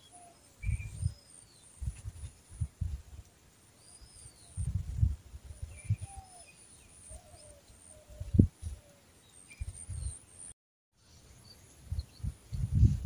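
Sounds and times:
wind buffeting on microphone: 0.6 - 1.2, 1.8 - 3.2, 4.4 - 6.3, 8.1 - 8.8, 11.8 - 13.0
birds chirping: 5.5 - 10.5.

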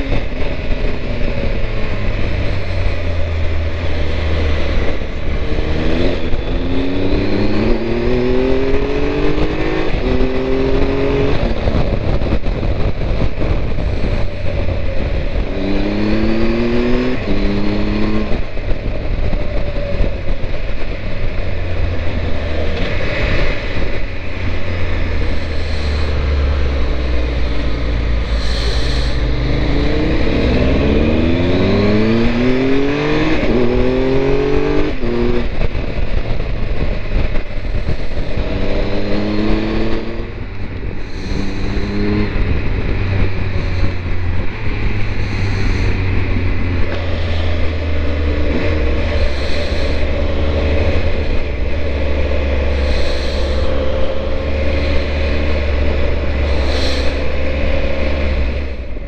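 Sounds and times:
motorcycle engine accelerating: 0.0 - 59.0
wind rumble on microphone: 0.0 - 59.0.

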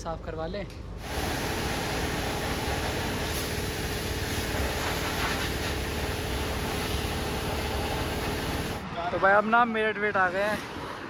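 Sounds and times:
constant hum: 0.0 - 9.2
pressure washer spray hissing: 1.0 - 8.8.

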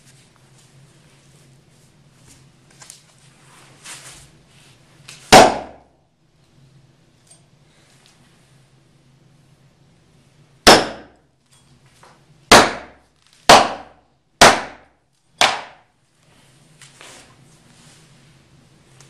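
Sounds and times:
hatchet striking hard floor: 5.3 - 5.9, 10.7 - 11.2, 12.5 - 15.9.

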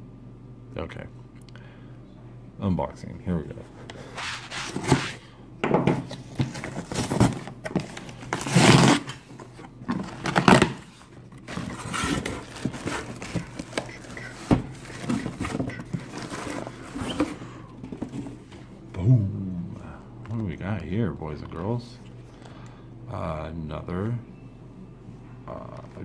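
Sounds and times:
cardboard box scraping and tearing: 8.3 - 9.1, 11.5 - 13.7.

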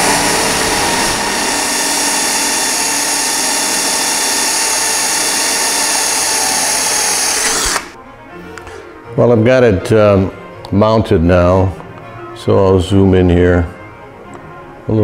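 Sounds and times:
cordless drill whining: 0.0 - 8.0.

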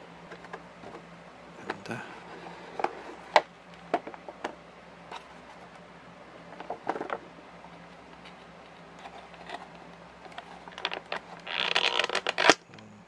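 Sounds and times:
toy packaging crackling: 10.6 - 12.6.

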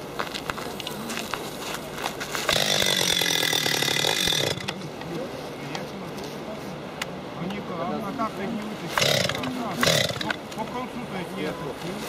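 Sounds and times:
chainsaw idling and revving: 2.5 - 4.8, 9.0 - 10.4.

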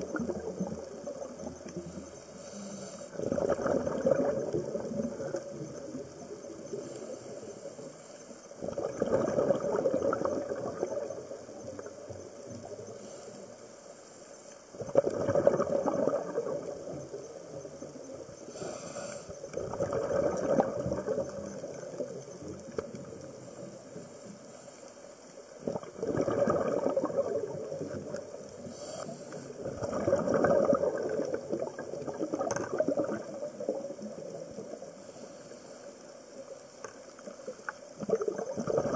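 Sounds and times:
regulator exhale bubbles: 0.0 - 12.0, 14.8 - 17.2, 18.4 - 24.9, 25.6 - 36.0, 38.0 - 38.9
regulator inhale hiss: 1.8 - 3.2, 6.7 - 8.6, 12.9 - 14.6, 18.4 - 19.5, 23.4 - 25.4, 28.6 - 29.7, 34.9 - 36.4.

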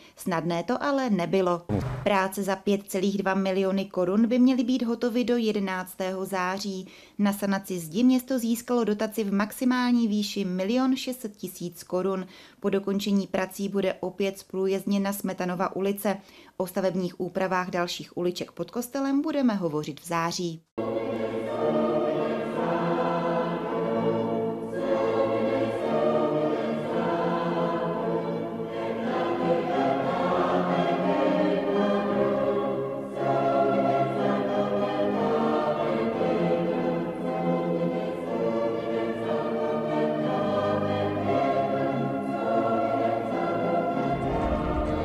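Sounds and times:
choir singing slow chords: 20.8 - 45.0.

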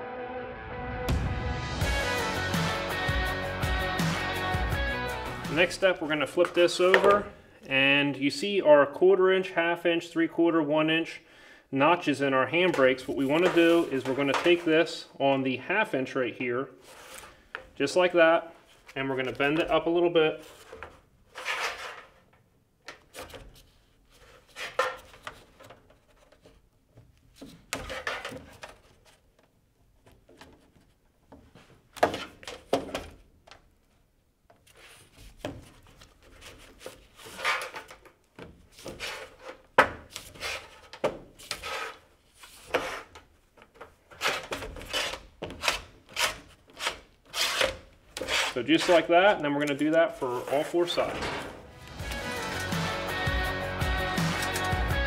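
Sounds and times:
metal scraping and rubbing: 12.6 - 15.0, 20.4 - 22.2, 38.8 - 43.2, 44.1 - 55.0
sheet metal flexing: 44.1 - 52.8.

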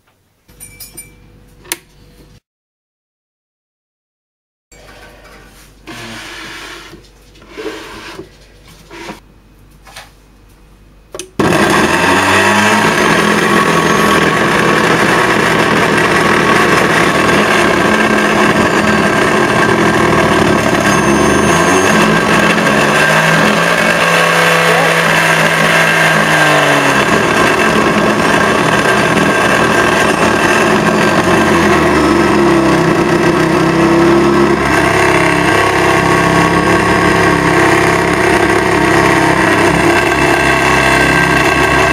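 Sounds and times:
blender motor running: 5.9 - 8.2, 11.4 - 41.9.

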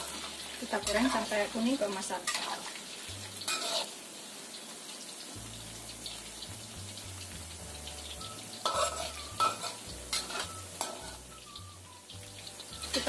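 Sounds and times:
metal spatula scraping wok: 0.0 - 4.0, 8.0 - 11.6
food deep-frying in oil: 0.0 - 13.0.

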